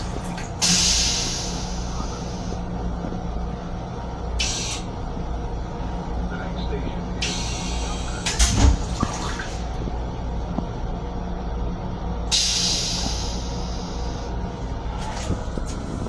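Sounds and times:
toilet flushing hiss: 0.0 - 2.4, 12.3 - 14.2
low hum of railcar: 0.0 - 16.0.

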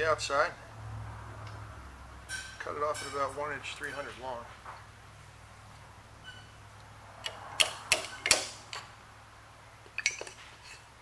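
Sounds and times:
metallic tool clicks and taps: 7.2 - 8.9.

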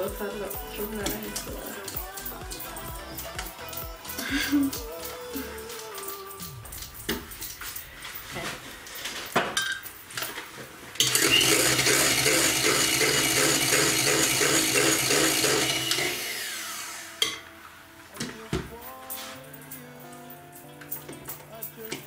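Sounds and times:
electric hand mixer running: 11.0 - 17.4.

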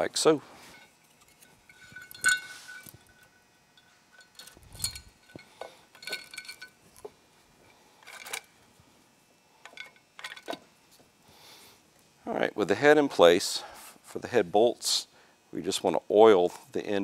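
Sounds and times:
metal clinks and knocks: 0.6 - 8.5, 9.6 - 10.6.

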